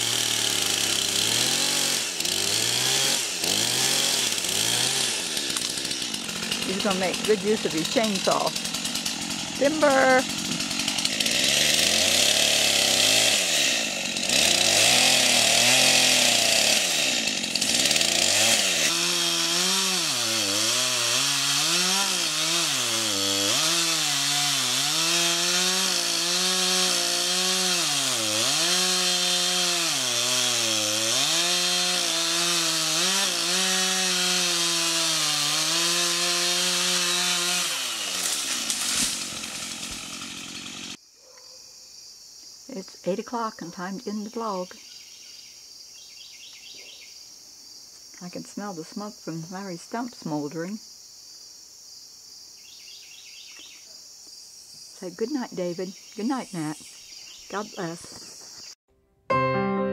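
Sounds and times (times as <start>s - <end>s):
chainsaw cutting wood: 0.0s - 41.0s.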